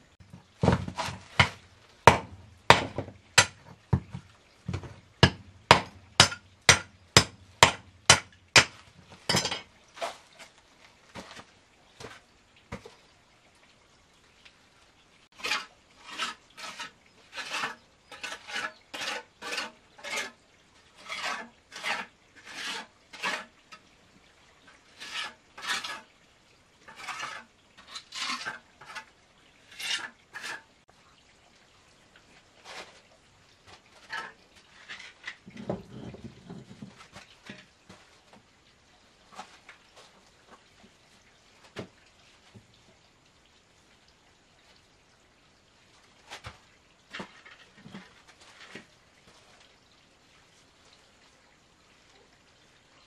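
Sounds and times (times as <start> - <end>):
mortar scraping on concrete blocks: 0.3 - 12.9, 15.4 - 20.4, 21.0 - 23.6, 24.9 - 26.1, 26.9 - 30.7, 33.7 - 38.0.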